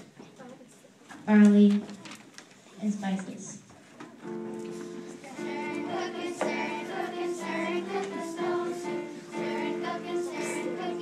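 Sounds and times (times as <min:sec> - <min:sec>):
children singing: 0:05.1 - 0:11.0.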